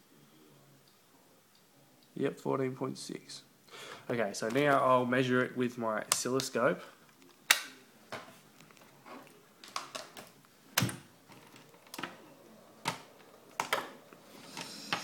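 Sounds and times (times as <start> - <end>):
oscilloscope hum and hiss: 0.0 - 15.0
clicks and knocks of handling: 7.1 - 12.2, 12.8 - 15.0.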